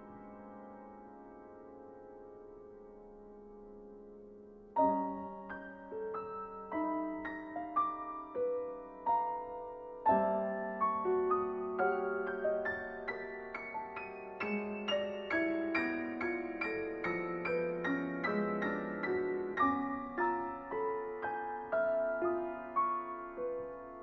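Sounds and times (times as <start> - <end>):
solo piano playing: 0.0 - 24.0.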